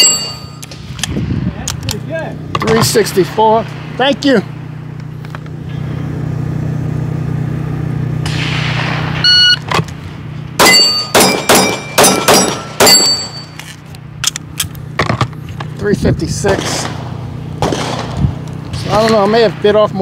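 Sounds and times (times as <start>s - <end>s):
shot timer beep: 9.2s - 9.7s
pistol firing rapid shots: 10.6s - 13.1s, 16.5s - 18.2s.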